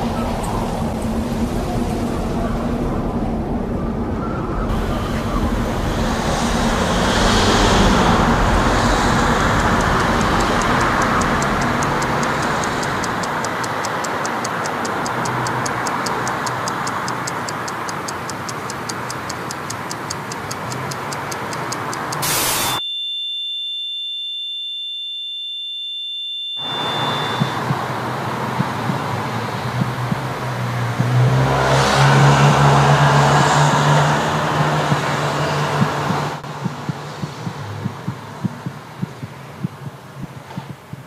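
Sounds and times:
wind rumble on microphone: 0.0s - 13.2s
street traffic noise: 0.0s - 22.8s, 26.6s - 41.0s
fast even ticking: 8.3s - 22.8s
high electronic tone: 8.9s - 27.9s.

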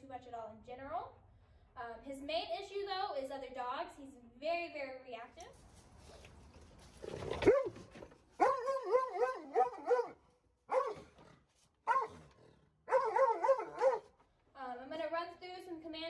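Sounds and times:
dog barking: 7.4s - 11.1s, 11.8s - 12.2s, 12.9s - 14.1s.

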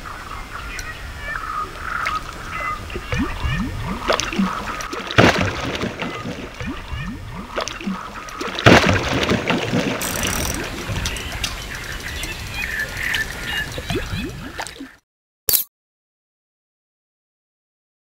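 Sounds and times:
water splashing and gurgling: 1.3s - 15.0s
loud splashes: 3.0s - 11.9s.

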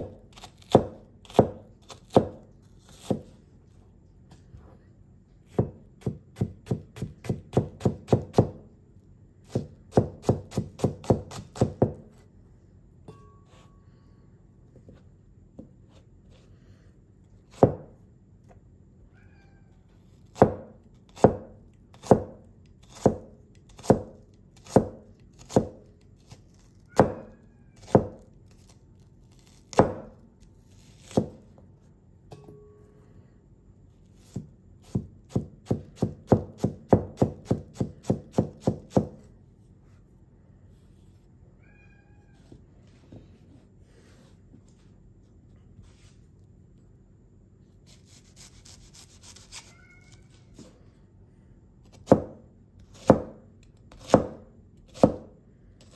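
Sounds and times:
cleaver chopping on cutting board: 54.0s - 55.3s.

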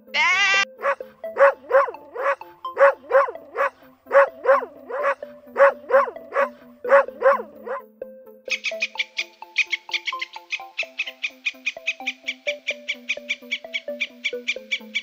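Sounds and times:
sheep bleating: 0.0s - 0.7s
background music: 0.0s - 15.0s
dog barking: 0.5s - 7.8s.

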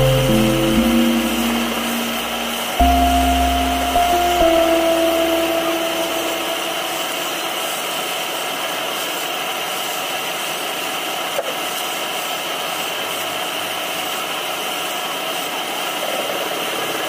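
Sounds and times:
background music notes: 0.0s - 7.8s.

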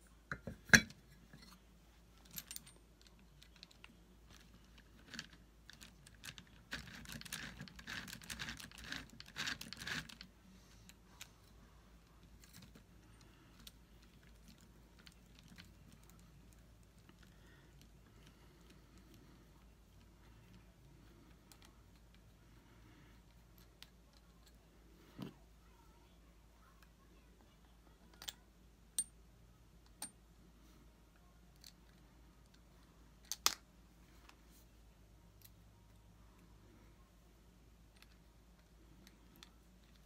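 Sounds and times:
small plastic and metal parts clicking: 2.2s - 10.3s, 33.2s - 33.6s.

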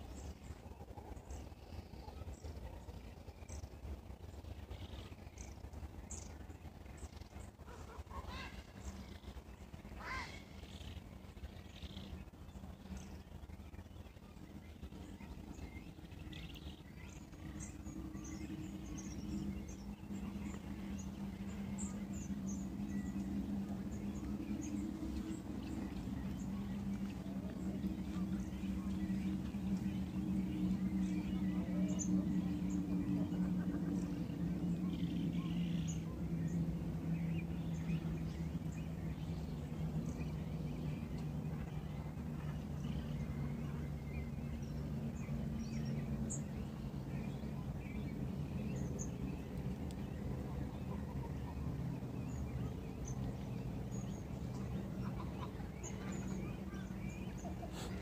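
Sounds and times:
small birds chirping: 0.0s - 58.0s
steady low hum: 0.0s - 58.0s.

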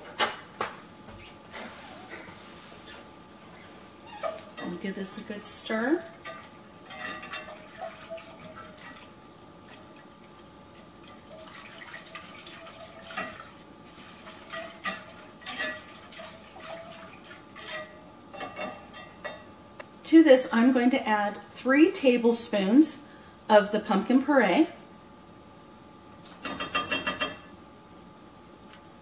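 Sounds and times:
whisk tapping and scraping pan: 13.1s - 19.1s.

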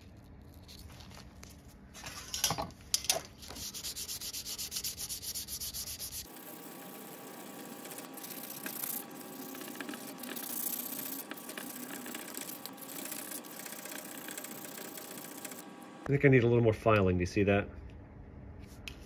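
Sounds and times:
sandpaper rubbing on metal: 3.4s - 15.6s.

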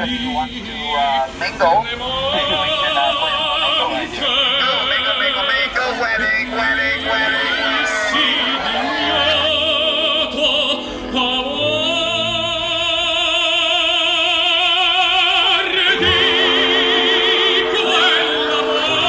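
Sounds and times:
operatic singing: 0.0s - 19.0s
orchestral music: 5.7s - 19.0s.

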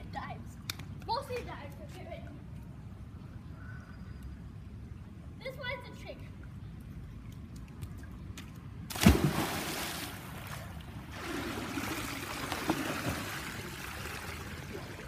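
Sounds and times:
bare feet slapping wet deck: 7.3s - 10.1s
child splashing into pool: 8.9s - 14.9s
water churning and splashing: 8.9s - 15.0s.

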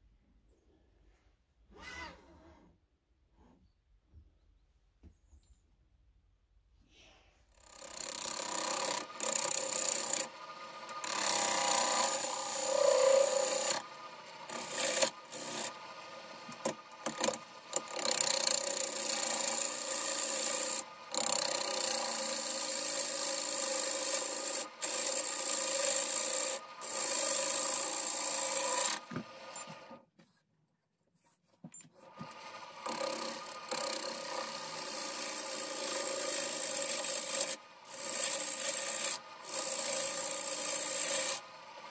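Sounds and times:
lathe gouge scraping wood: 7.6s - 29.9s, 32.2s - 41.9s.

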